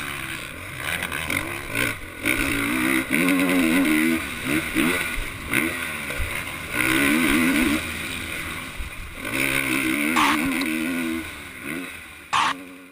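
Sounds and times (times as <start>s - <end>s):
motocross bike engine revving: 0.0s - 12.9s.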